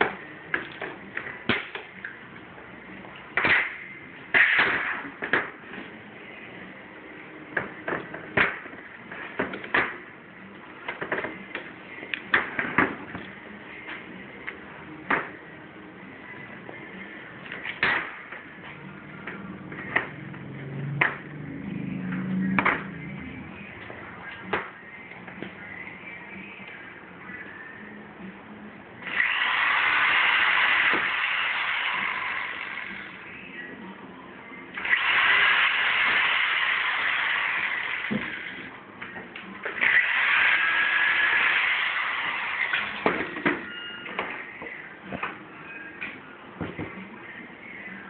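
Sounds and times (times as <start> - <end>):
cordless drill boring metal: 29.0 - 33.1, 34.8 - 38.7, 39.8 - 43.0.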